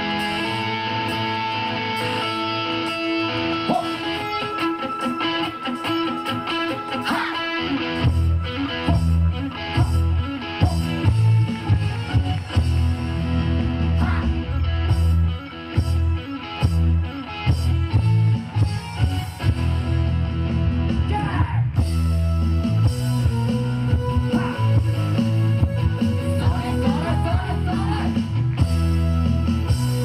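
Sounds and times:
electric guitar: 0.0s - 30.0s
heavy rhythmic bass line: 0.0s - 30.0s
dance music over stage speakers: 22.8s - 28.7s.

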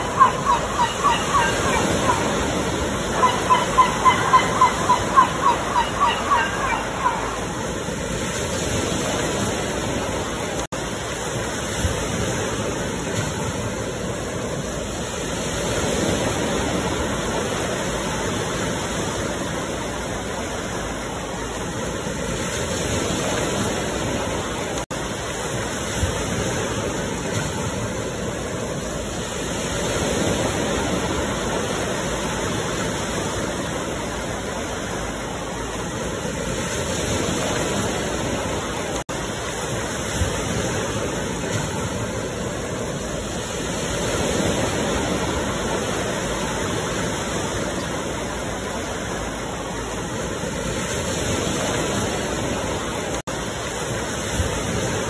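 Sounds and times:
ocean surf washing in: 0.0s - 55.0s.

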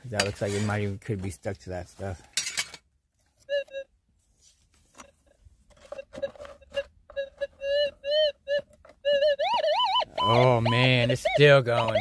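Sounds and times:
metal detector beeping: 3.4s - 3.9s, 5.8s - 12.0s.

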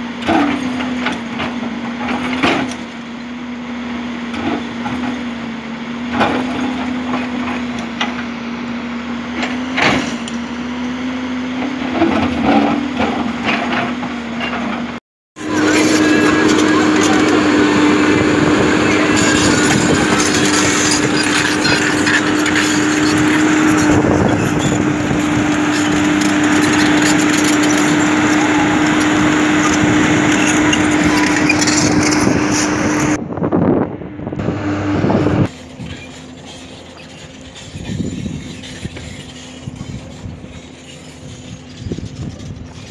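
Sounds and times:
excavator engine humming: 0.0s - 42.9s
steel bucket scraping: 15.4s - 33.2s, 35.4s - 42.9s.

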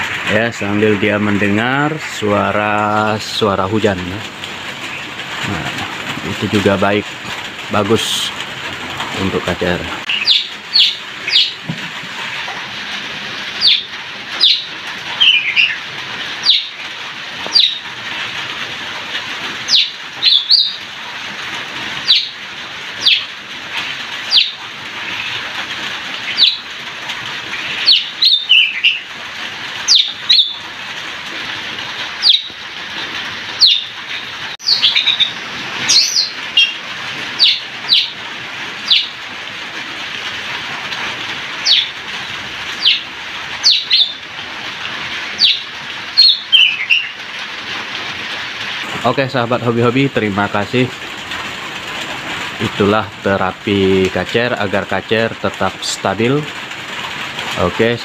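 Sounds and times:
light drizzle hissing: 0.0s - 58.0s
bird chirping: 10.1s - 11.7s, 13.5s - 15.8s, 16.4s - 16.8s, 17.5s - 17.8s, 19.6s - 20.8s, 22.0s - 22.4s, 23.0s - 23.3s, 24.3s - 25.4s, 26.2s - 26.7s, 27.6s - 29.1s, 29.8s - 30.6s, 32.2s - 32.6s, 33.6s - 36.8s, 37.4s - 38.2s, 38.8s - 39.2s, 41.6s - 42.0s, 42.8s - 44.2s, 45.3s - 47.2s.

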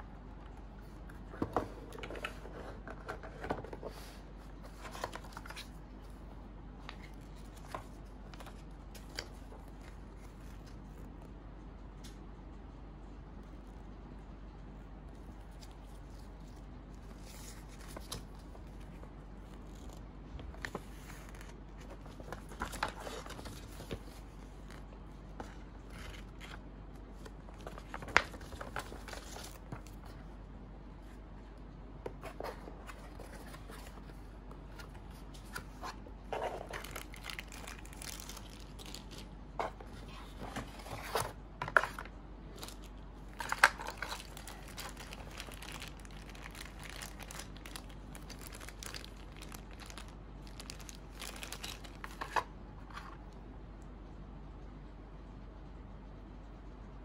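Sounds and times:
packaging rustling and crinkling: 1.3s - 5.8s, 15.6s - 30.2s, 32.2s - 52.5s.

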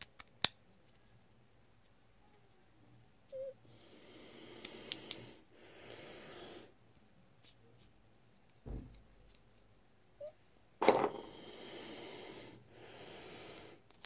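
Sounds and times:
low thump: 8.6s - 9.0s.

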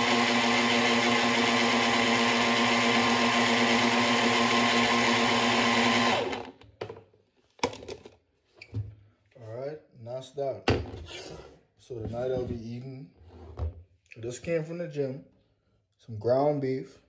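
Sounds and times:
blender running: 0.0s - 6.6s.

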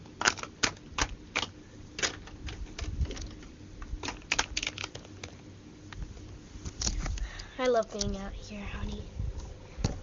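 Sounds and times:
plastic toys clicking and tapping: 0.2s - 3.4s, 4.0s - 5.4s.

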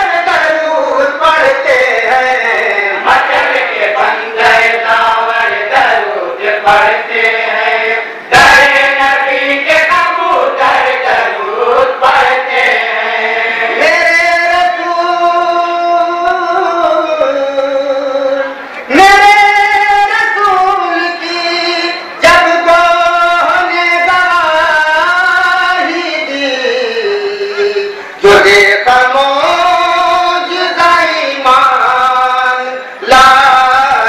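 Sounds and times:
male voices chanting together: 0.0s - 18.2s.

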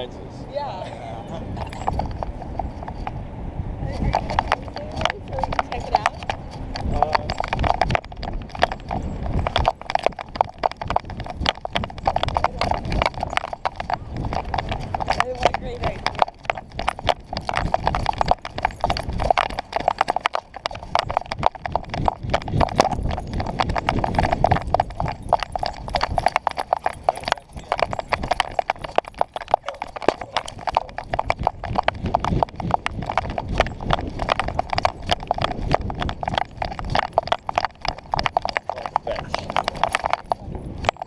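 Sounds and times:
camera knocking and rattling: 4.0s - 15.2s.

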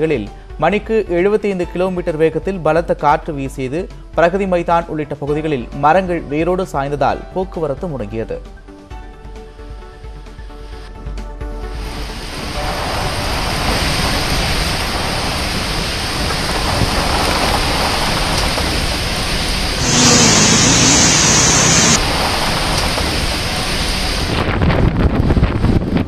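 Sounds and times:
heavy rain falling: 12.2s - 24.3s.

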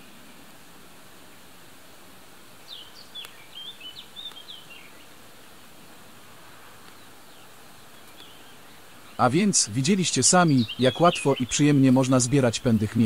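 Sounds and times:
steady outdoor background hiss: 0.0s - 13.0s
small bird chirping: 2.6s - 5.8s, 6.6s - 13.0s.

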